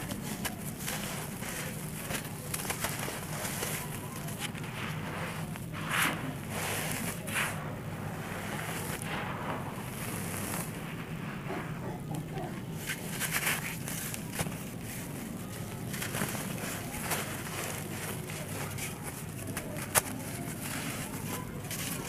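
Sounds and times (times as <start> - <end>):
low hum: 0.0 - 13.2
sand rustling under hands: 0.0 - 22.0.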